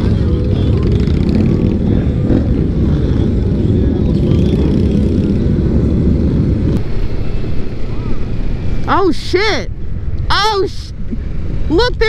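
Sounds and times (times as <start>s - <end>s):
wind rushing over microphone: 0.0s - 8.9s
motorcycle running: 0.0s - 9.0s.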